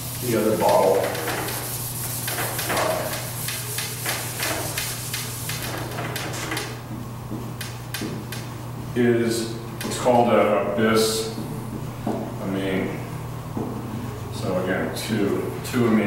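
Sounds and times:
eraser rubbing on whiteboard: 0.0 - 6.7
marker writing on whiteboard: 0.4 - 8.5.

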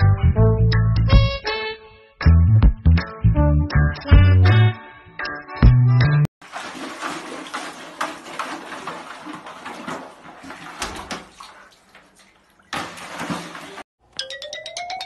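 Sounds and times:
water splashing in a plastic bucket: 6.4 - 13.9.

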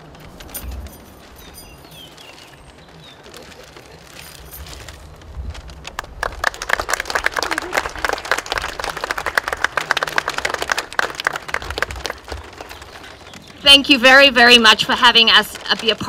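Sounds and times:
audience applauding: 5.9 - 13.5.

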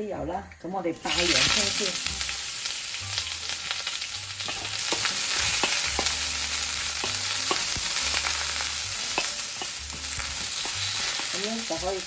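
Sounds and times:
onion sizzling in oil: 1.0 - 12.0
spatula scraping a wok: 3.7 - 12.0.

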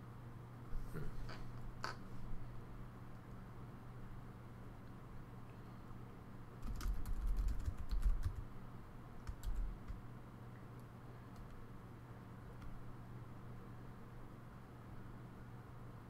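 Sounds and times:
faint steady hum: 0.0 - 16.0
typing on a keyboard: 6.6 - 8.5, 9.2 - 10.0, 11.3 - 11.6.

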